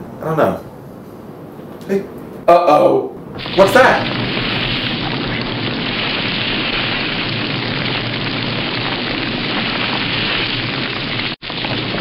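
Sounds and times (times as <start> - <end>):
steady rushing noise: 3.2 - 12.0.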